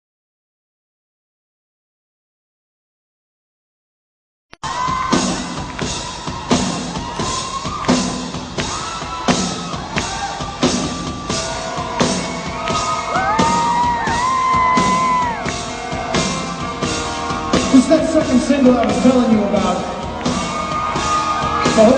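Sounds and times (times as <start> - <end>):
fans screaming and whooping: 4.6 - 21.9
live rock band playing: 4.7 - 21.9.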